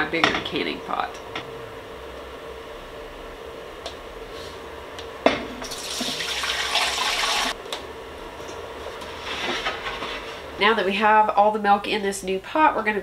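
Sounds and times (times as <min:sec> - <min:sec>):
milk pouring into pot: 0:05.6 - 0:07.6.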